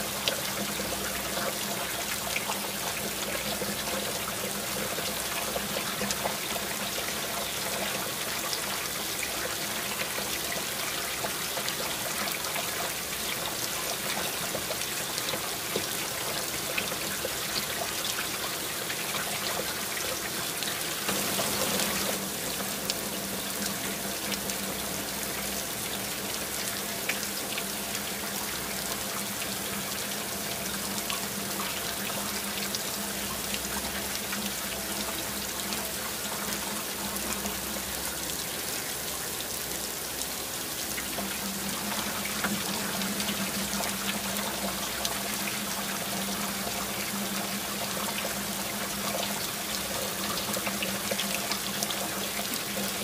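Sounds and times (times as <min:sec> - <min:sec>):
heavy rain falling: 0:19.9 - 0:29.8.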